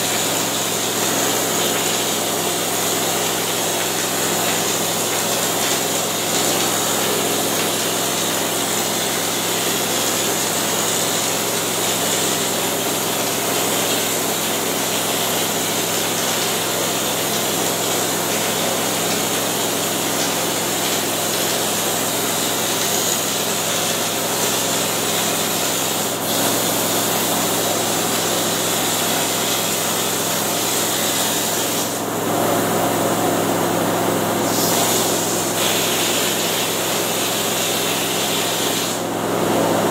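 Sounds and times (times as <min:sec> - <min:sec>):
compressed air hissing: 0:34.5 - 0:36.4.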